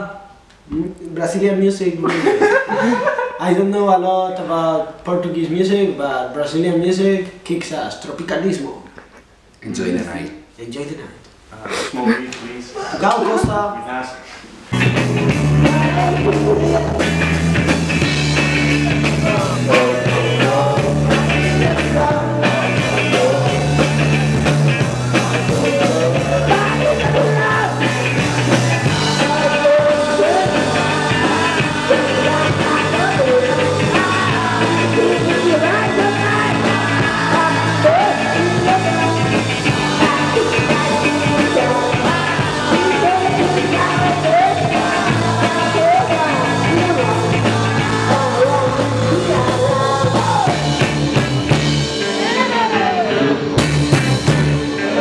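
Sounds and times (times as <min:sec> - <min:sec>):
drums: 0:13.2 - 0:55.0
electric guitars: 0:14.7 - 0:55.0
lead vocal singing: 0:15.4 - 0:51.1.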